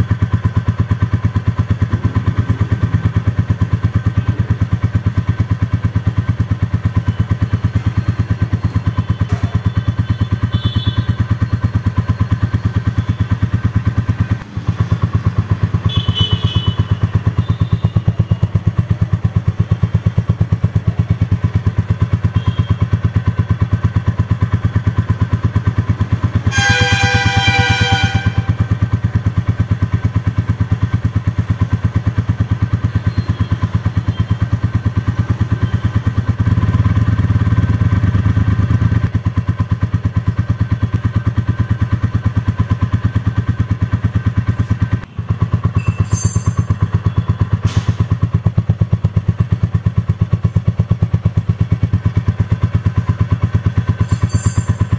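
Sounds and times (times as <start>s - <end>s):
motorcycle engine idling: 0.0s - 54.9s
short pitched tone: 45.6s - 47.4s.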